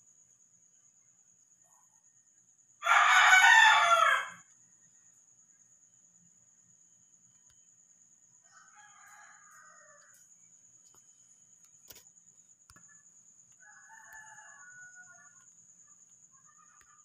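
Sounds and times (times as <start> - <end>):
faint rooster crowing: 2.8 - 4.6, 8.3 - 10.4, 12.7 - 17.0.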